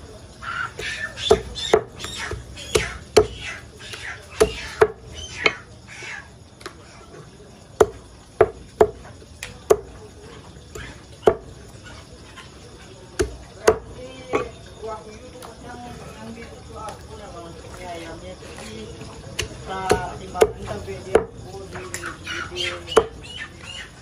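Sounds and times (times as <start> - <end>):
cleaver chopping on wooden block: 0.8 - 5.6, 7.8 - 9.0, 10.8 - 11.5, 13.2 - 13.8, 19.4 - 21.3.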